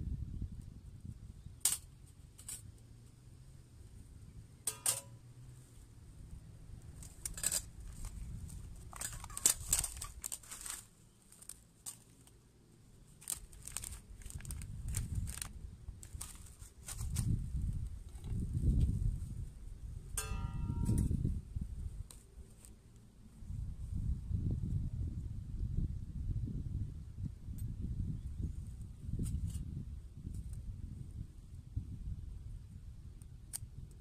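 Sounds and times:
handling clicks and rustles: 4.6 - 5.8, 6.8 - 17.4
metal clink: 4.7 - 5.2, 20.2 - 21.1
packet crinkling and tearing: 8.9 - 12.2, 13.1 - 17.2.

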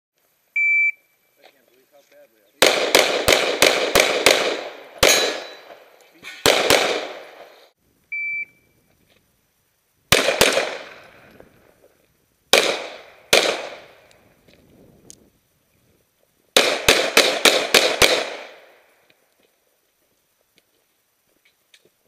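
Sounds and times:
shot timer beep: 0.6 - 1.0, 8.1 - 8.7
pistol shots with echo: 2.6 - 5.8, 6.4 - 7.5, 10.1 - 11.0, 12.5 - 14.0, 16.6 - 18.7.

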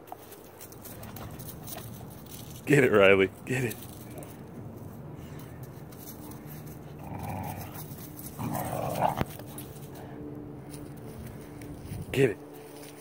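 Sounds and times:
dogs growling: 6.3 - 10.1.

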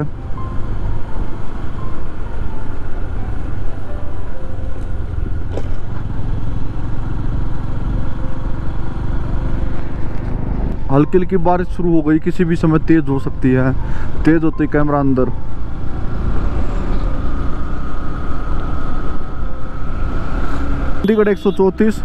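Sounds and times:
motorcycle engine running: 4.6 - 10.8.

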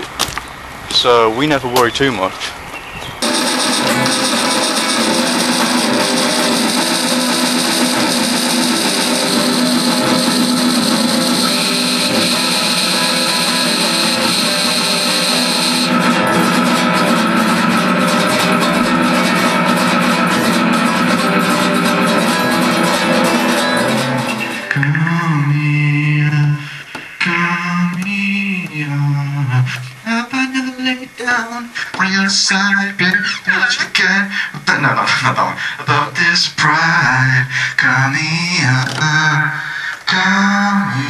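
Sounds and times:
held steady tones: 3.2 - 25.4
guitar playing: 3.2 - 25.6.

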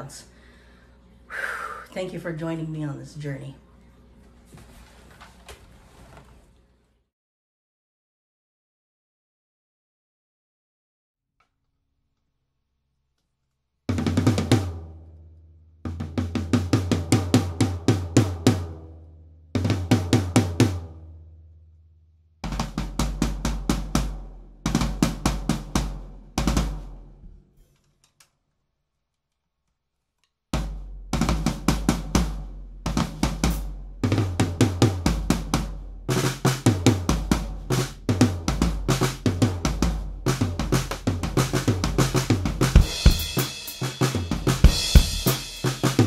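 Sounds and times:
drum kit fills and grooves: 13.9 - 14.9, 15.8 - 18.9, 19.5 - 21.0, 22.4 - 27.2, 30.6 - 46.0.

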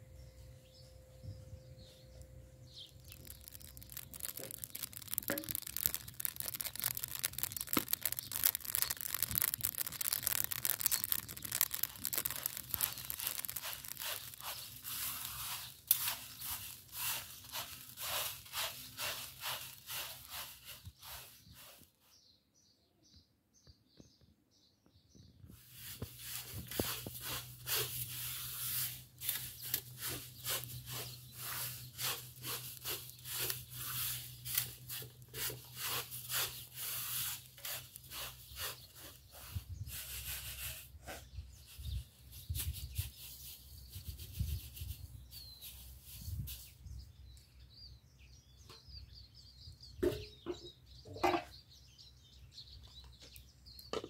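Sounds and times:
rice stirred in metal pan: 2.9 - 21.8, 25.6 - 44.9.

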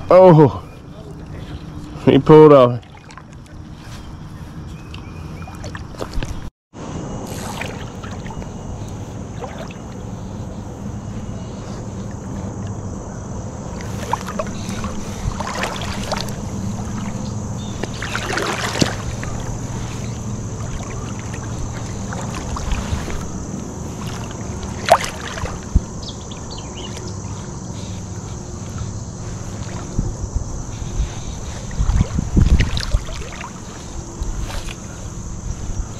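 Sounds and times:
shallow river water flowing: 0.0 - 35.9
fly line swishes and knocks: 13.8 - 23.4.

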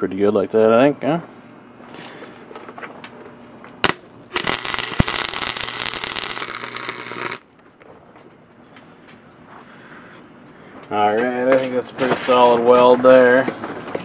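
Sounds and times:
welding arc crackling and buzzing: 3.8 - 7.6.

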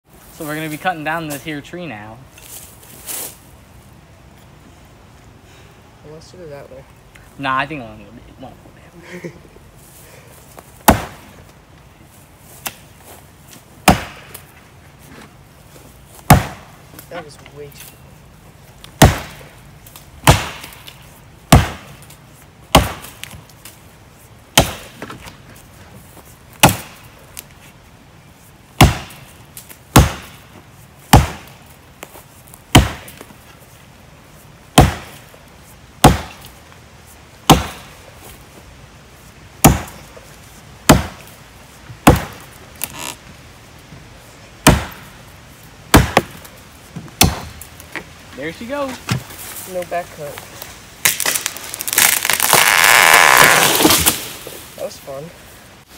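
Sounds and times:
axe chopping into tree trunk: 10.8 - 11.3, 13.8 - 14.5, 16.2 - 16.8, 19.0 - 19.5, 20.2 - 22.1, 22.7 - 23.7, 24.5 - 25.3, 26.6 - 27.1, 28.8 - 30.5, 31.1 - 32.1, 32.7 - 33.3, 34.7 - 35.3, 36.0 - 36.5, 37.4 - 38.0, 39.6 - 40.1, 40.8 - 41.3, 42.0 - 42.5, 44.6 - 45.1, 45.9 - 46.5, 47.1 - 47.7, 53.4 - 54.5.

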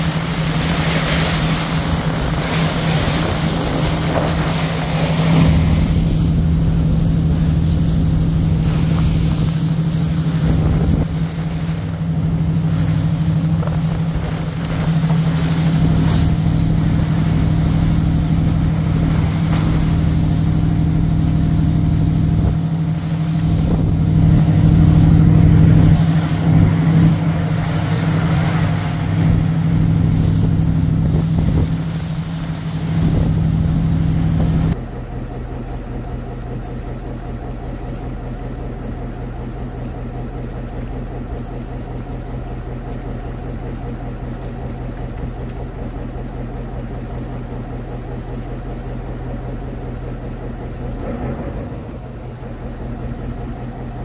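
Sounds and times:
wind noise: 0.0 - 34.8
boat engine running: 0.0 - 54.0.

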